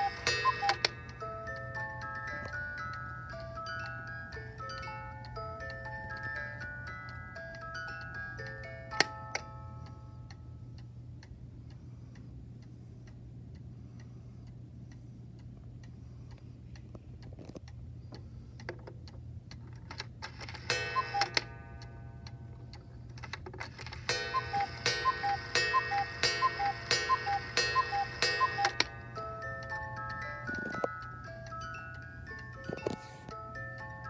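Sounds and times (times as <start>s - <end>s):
two-note cuckoo call: 0.0s - 1.0s, 20.8s - 21.4s, 24.1s - 28.9s
clock chiming notes: 0.0s - 10.7s, 20.6s - 22.5s, 23.9s - 34.0s
clock ticking: 0.0s - 34.0s.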